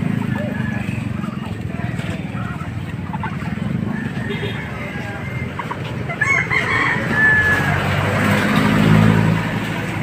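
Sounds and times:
motor vehicle passing: 0.0 - 10.0
rooster crowing: 3.8 - 5.5, 6.1 - 8.2.

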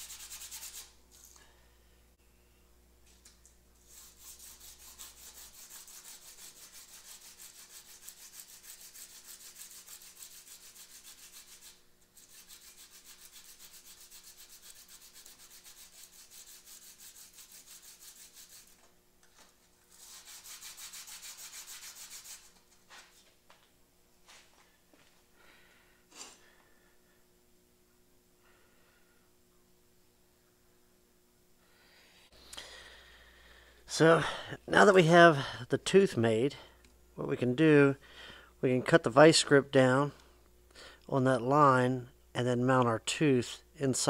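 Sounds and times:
steel tool rubbed on sandpaper: 0.0 - 1.0, 3.8 - 18.8, 19.9 - 22.6.

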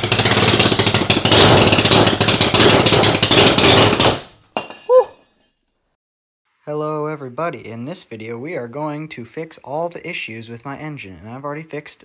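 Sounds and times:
single-cylinder engine running roughly: 0.0 - 4.3.

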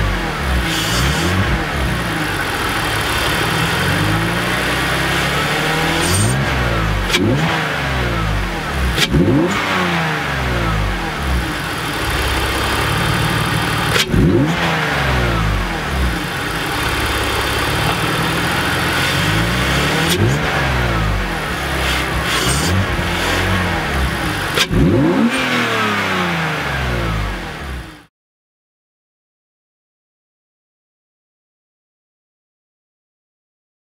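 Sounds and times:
car engine revving: 0.0 - 28.1
engine intake noise: 15.7 - 20.8.

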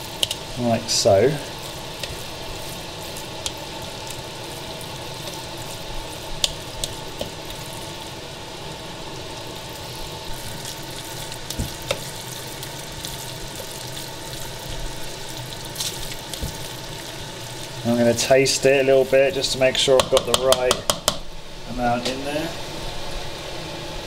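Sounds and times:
steady hiss: 0.0 - 24.0
spoon stirring mash in bowl: 1.6 - 4.2
spoon knocking against bowl: 20.0 - 21.2.

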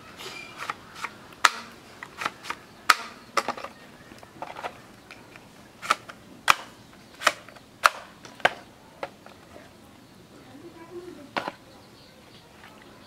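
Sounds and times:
plastic toy guns clacking: 0.6 - 3.7, 5.8 - 9.2.

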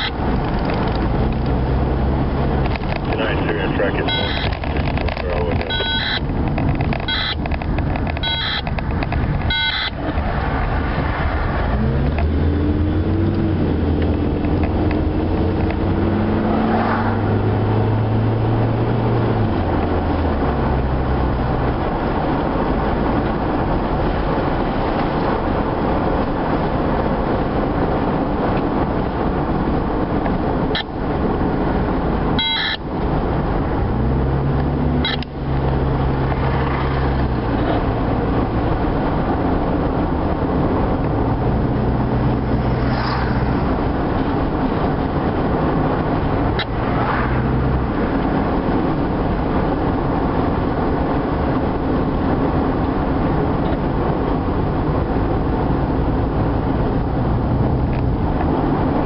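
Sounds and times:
car engine accelerating: 0.0 - 59.0
car road noise: 0.0 - 59.0
clicking beeps: 4.0 - 4.8, 5.6 - 6.2, 7.0 - 7.5, 8.1 - 8.8, 9.4 - 10.0, 32.4 - 32.8, 35.0 - 35.3.

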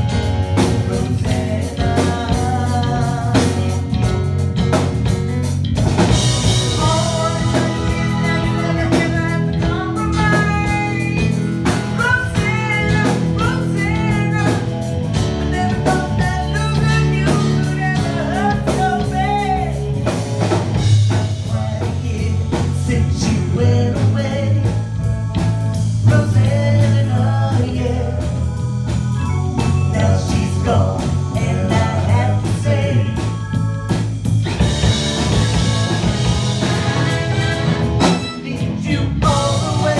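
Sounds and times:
drum kit: 0.0 - 39.9
electric bass guitar: 0.0 - 39.9
keyboards: 0.0 - 39.9
woman singing: 0.6 - 3.9, 6.7 - 14.7, 15.5 - 19.9, 26.1 - 28.4, 29.9 - 34.1, 38.3 - 39.9.

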